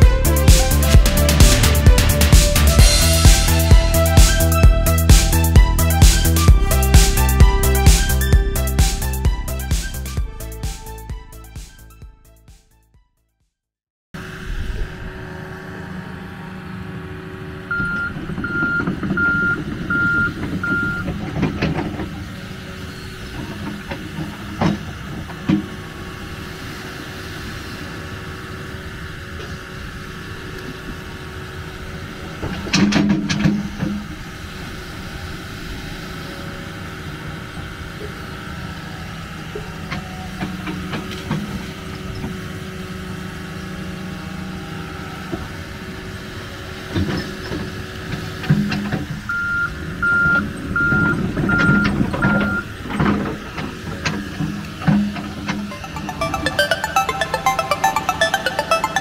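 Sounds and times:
excavator diesel engine running: 0.0 - 11.6
travel alarm beeps: 17.7 - 21.1, 49.3 - 52.7.

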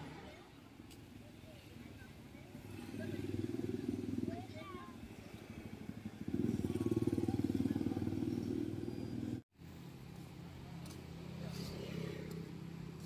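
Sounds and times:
motorcycle engine running: 2.7 - 9.4.

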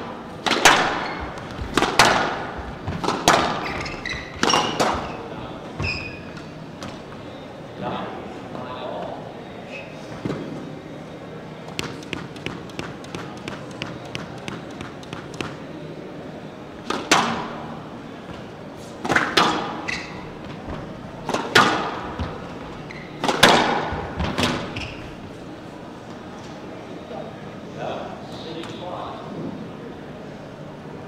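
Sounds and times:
racket smacking ball: 0.4 - 5.2, 19.0 - 19.8, 21.2 - 22.4, 23.2 - 24.7
ball hitting court walls: 0.4 - 7.0, 16.8 - 17.6, 19.0 - 25.1.

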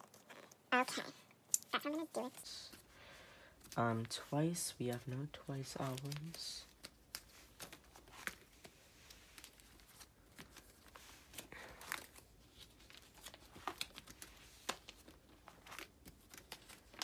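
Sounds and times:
plastic pages rustling: 3.6 - 17.0.

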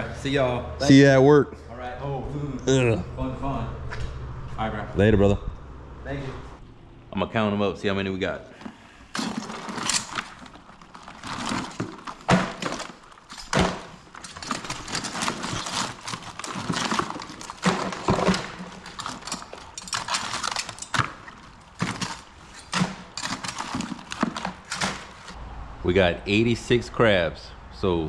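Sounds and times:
crab shells clacking and scraping: 8.7 - 25.4.

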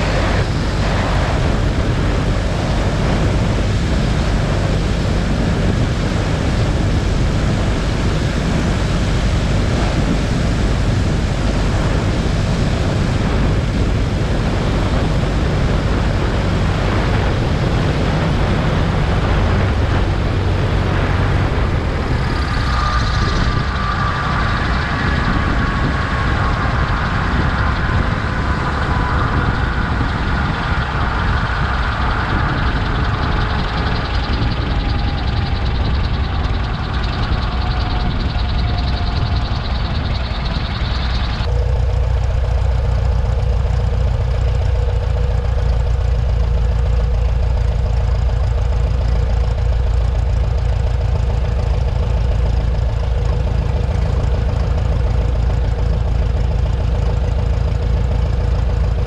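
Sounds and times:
light aircraft engine droning: 0.0 - 59.0
wavering high tone: 21.2 - 42.3.

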